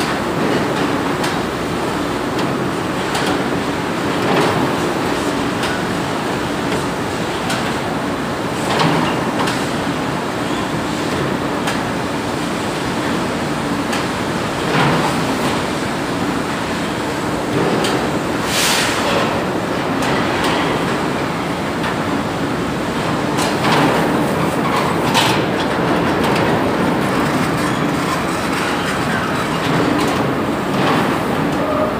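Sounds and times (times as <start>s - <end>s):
machine rattling and humming: 19.1s - 31.6s.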